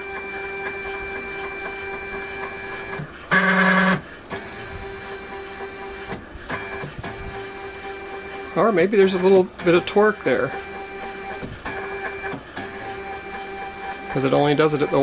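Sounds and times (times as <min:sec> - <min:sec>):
stepper motors whining: 0:00.0 - 0:15.0
loud buzz: 0:03.3 - 0:04.0.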